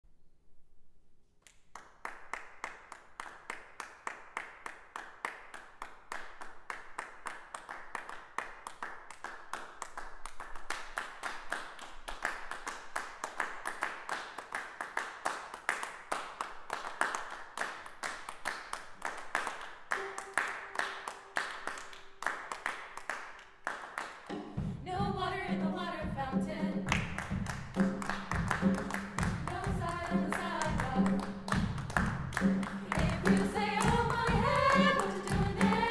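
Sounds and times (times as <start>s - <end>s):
people clapping in rhythm: 1.5s - 24.8s, 25.4s - 35.9s.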